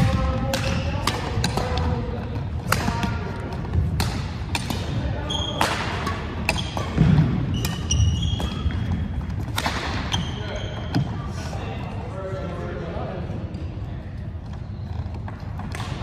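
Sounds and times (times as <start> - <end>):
rackets striking shuttlecock: 0.0 - 10.2
sneakers squeaking on wooden floor: 5.1 - 5.8, 6.4 - 11.3.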